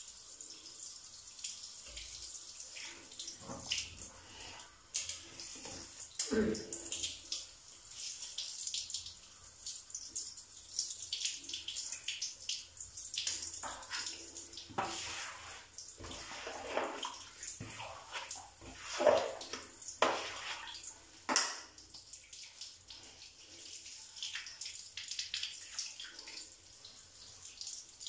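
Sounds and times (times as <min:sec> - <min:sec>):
water splashing: 0:13.2 - 0:23.2.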